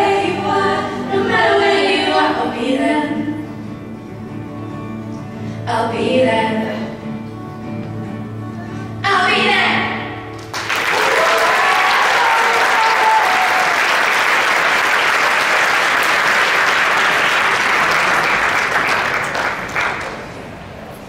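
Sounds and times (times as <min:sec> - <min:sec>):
audience applauding: 0:10.4 - 0:20.6
people cheering: 0:10.6 - 0:20.2.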